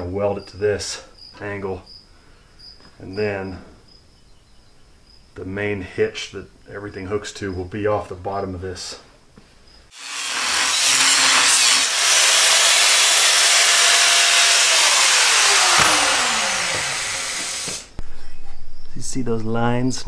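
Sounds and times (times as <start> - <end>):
angle grinder cutting steel: 9.9 - 17.9
grinder spinning down: 10.0 - 17.9.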